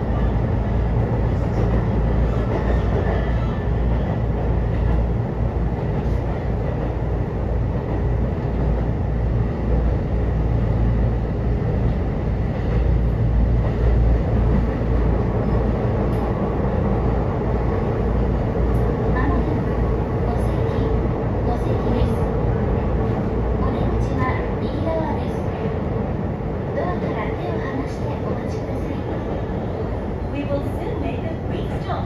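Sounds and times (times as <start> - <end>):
train wheels rumbling: 0.0 - 32.0.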